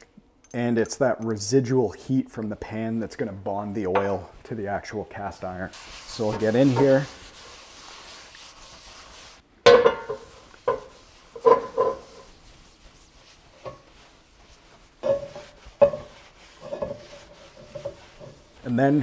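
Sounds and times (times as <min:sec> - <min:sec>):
paper towel rubbing skillet: 0:05.1 - 0:09.4, 0:10.1 - 0:19.0
towel squeaking on pan: 0:05.8 - 0:09.2, 0:09.9 - 0:18.7.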